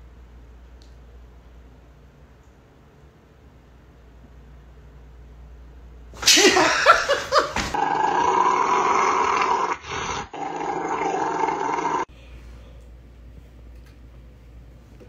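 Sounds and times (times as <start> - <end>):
dog growling: 7.7 - 12.1.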